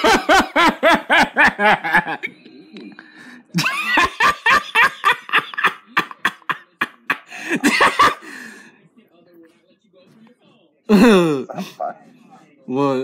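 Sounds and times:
person laughing hard: 0.0 - 2.2.

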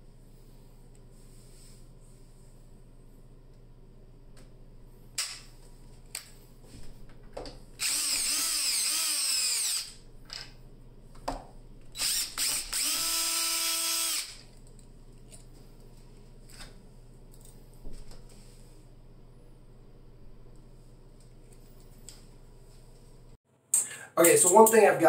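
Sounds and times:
cordless drill with hole saw: 7.8 - 10.0, 12.0 - 14.4.

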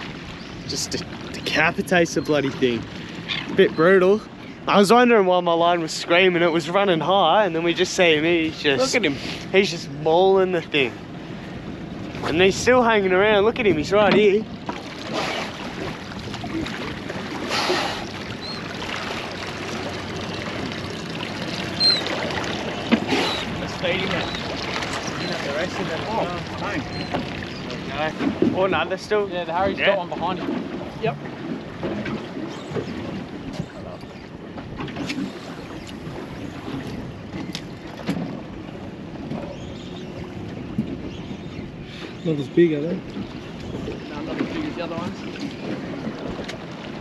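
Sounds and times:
water lapping against boat hull: 0.0 - 47.0
wind buffeting microphone: 0.0 - 47.0
water splash: 14.0 - 28.8.

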